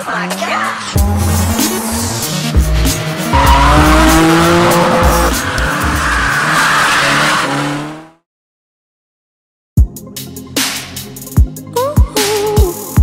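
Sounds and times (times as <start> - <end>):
car engine revving: 0.3 - 8.2
tyres squealing: 3.2 - 7.5.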